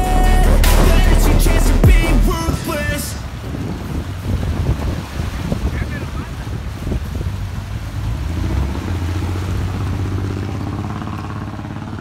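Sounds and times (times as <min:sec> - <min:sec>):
car engine running: 0:00.0 - 0:02.5
water splashing around tyres: 0:00.6 - 0:12.0.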